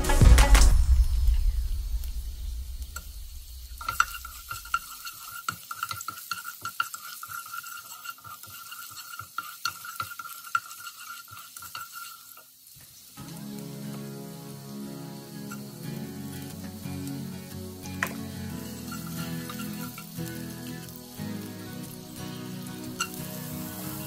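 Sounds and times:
light sizzle: 0.0s - 24.0s
wooden spatula scraping a pan: 3.8s - 13.0s, 17.9s - 21.0s, 21.7s - 24.0s
thin steady high note: 13.2s - 24.0s.

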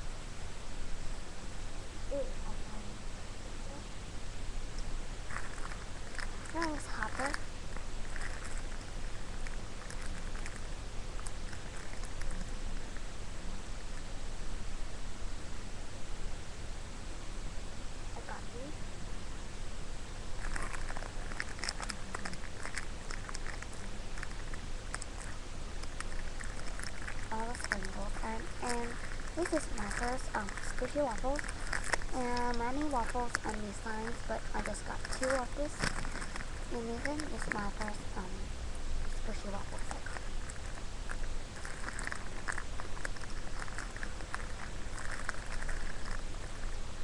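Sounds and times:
toys rustling: 5.2s - 13.1s, 20.4s - 46.8s.

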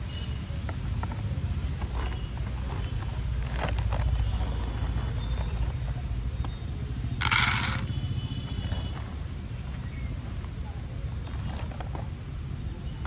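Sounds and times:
dry kibble poured into plastic bowl: 7.2s - 7.9s.

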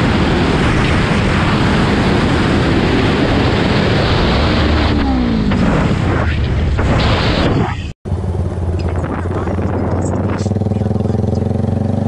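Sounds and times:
wind rushing over microphone: 0.0s - 7.9s, 8.8s - 10.8s
motorcycle engine running: 8.1s - 12.0s.

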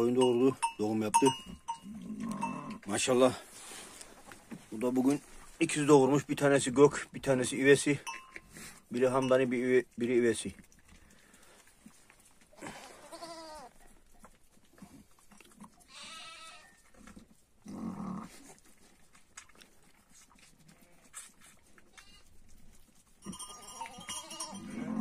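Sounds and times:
sheep bleating: 12.7s - 13.7s, 15.9s - 16.8s, 21.9s - 22.3s.

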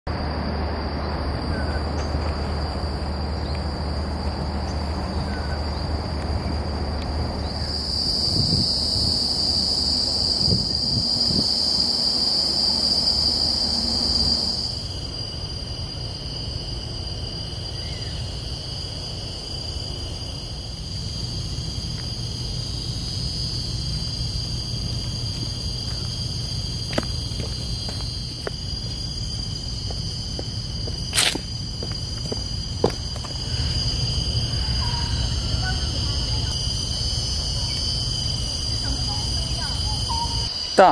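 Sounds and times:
distant road traffic rumble: 0.1s - 40.9s
insects droning: 0.1s - 40.9s.

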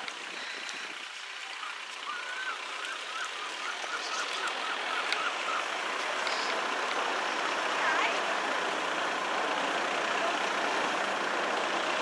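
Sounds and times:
level crossing alarm warbling: 2.0s - 6.4s.

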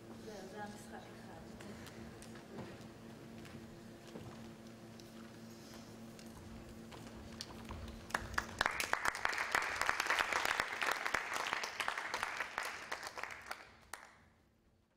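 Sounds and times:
audience applause: 8.0s - 14.2s.

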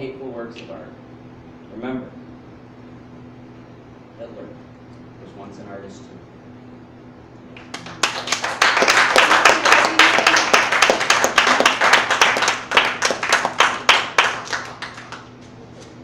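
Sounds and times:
audience applauding: 7.6s - 15.5s.

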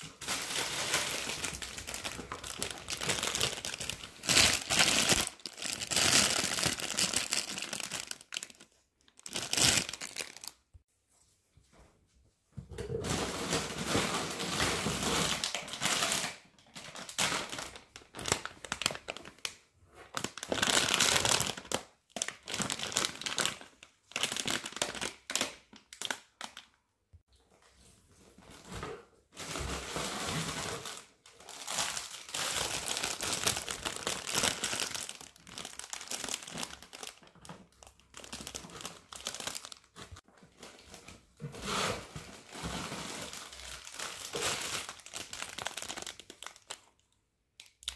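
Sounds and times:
packaging crinkling in a box: 0.1s - 10.6s, 20.2s - 26.6s, 30.6s - 41.0s, 42.4s - 47.0s.

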